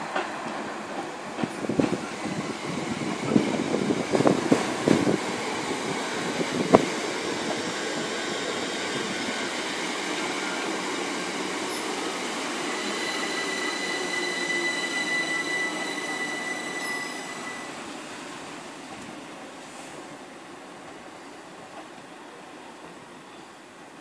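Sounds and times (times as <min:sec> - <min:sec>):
train rolling: 0:00.0 - 0:23.9
high wheel squeal: 0:11.4 - 0:18.0.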